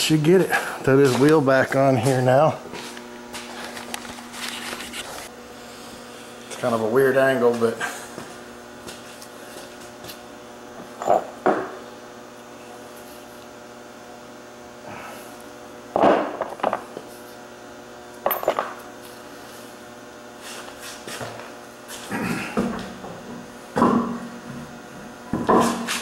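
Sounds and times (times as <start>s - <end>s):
steady electrical hum: 0.0s - 26.0s.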